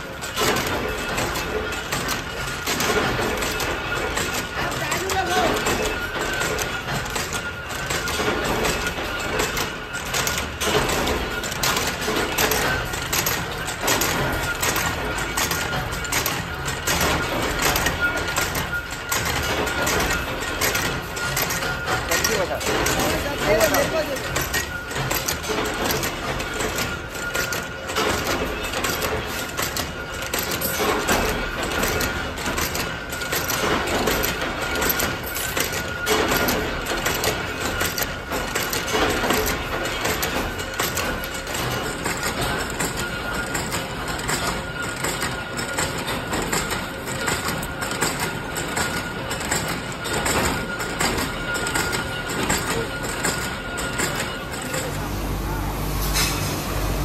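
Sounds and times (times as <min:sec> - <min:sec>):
metallic clatter of machinery: 0:00.0 - 0:57.0
high machine whine: 0:39.3 - 0:57.0.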